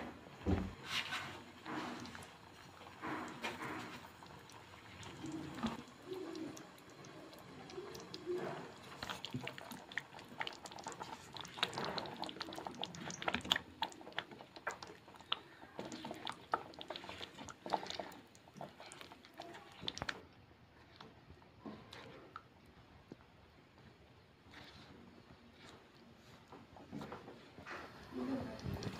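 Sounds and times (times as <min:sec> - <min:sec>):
spatula stirring thick gravy: 0:00.8 - 0:21.0.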